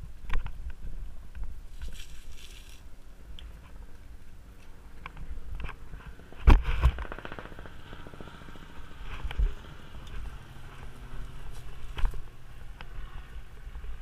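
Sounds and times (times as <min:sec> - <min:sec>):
wind rumble on microphone: 0:00.0 - 0:14.0
mountain bike rattling on dirt trail: 0:01.7 - 0:02.9, 0:05.1 - 0:14.0.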